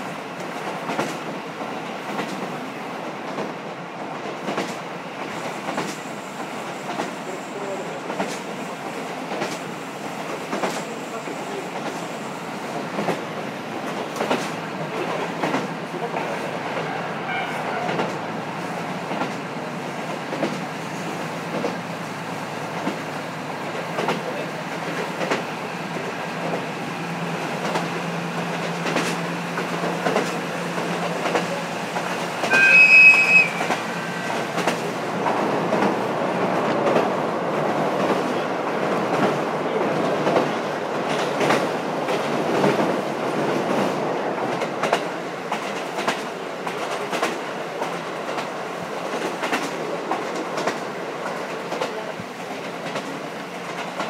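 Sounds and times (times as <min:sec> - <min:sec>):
train wheels clacking on rails: 0:00.0 - 0:54.0
shrill high tone: 0:32.5 - 0:33.7.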